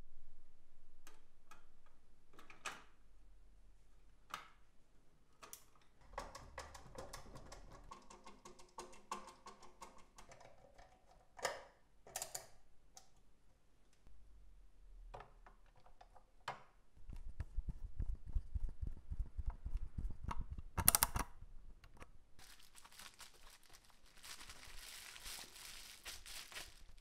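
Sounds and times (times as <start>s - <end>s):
bubble-wrap bag crinkling: 22.4s - 27.0s.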